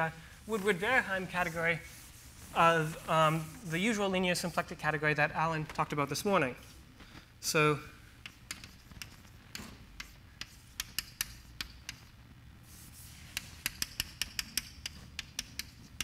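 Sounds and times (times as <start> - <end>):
chalk tapping on blackboard: 8.2 - 12.1, 12.7 - 16.0.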